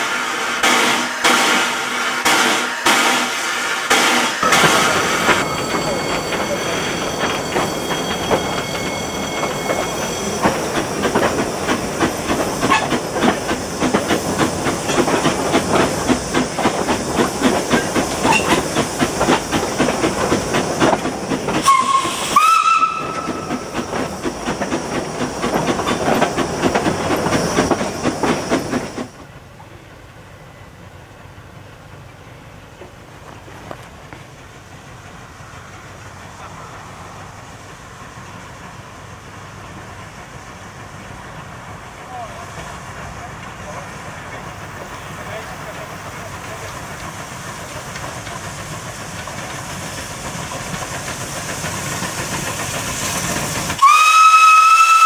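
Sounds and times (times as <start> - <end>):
rising steam whistle blast: 0.0 - 11.2, 21.5 - 24.0, 53.7 - 55.0
distant train: 0.0 - 55.0
steam locomotive running: 0.0 - 55.0.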